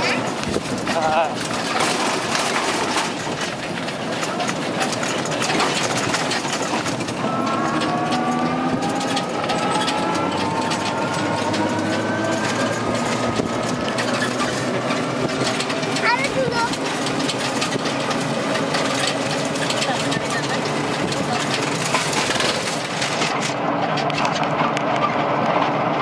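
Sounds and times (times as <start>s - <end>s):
road and wind noise: 0.0s - 26.0s
vehicle body rattling and bumping: 0.0s - 26.0s
drive whine rising in pitch: 7.1s - 15.4s.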